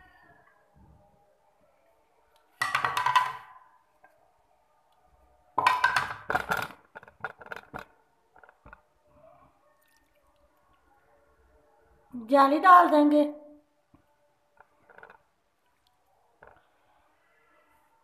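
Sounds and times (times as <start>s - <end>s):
dish clattering knocks: 2.6s - 3.5s, 5.6s - 7.8s.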